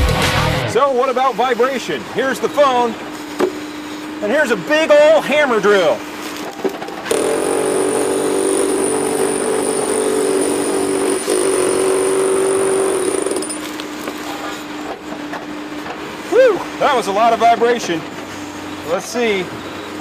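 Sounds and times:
hammer drill into plywood: 7.1 - 13.7.

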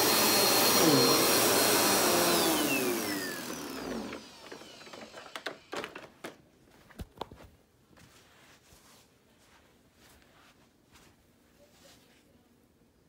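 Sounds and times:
vacuum cleaner motor spinning down: 0.0 - 6.1.

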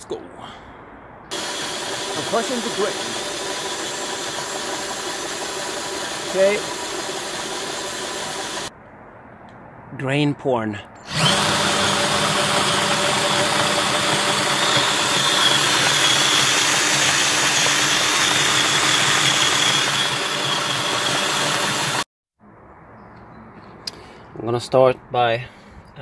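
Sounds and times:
drill motor whine: 1.3 - 8.7, 11.1 - 22.1
grain grinding: 1.3 - 8.7, 11.1 - 22.0.

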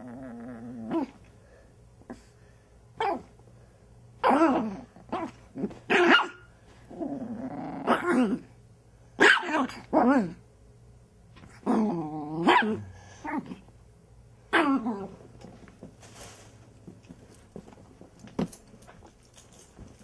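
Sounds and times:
puppy growling: 0.0 - 1.2, 6.9 - 8.5, 11.5 - 13.7.

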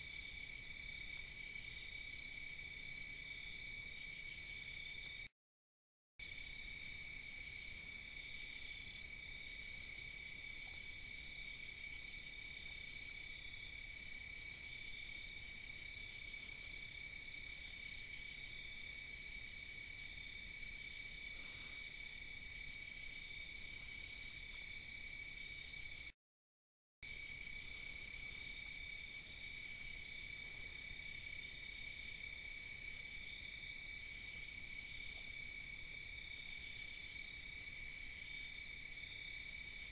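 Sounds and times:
crickets trilling: 0.0 - 5.3, 27.0 - 39.9.

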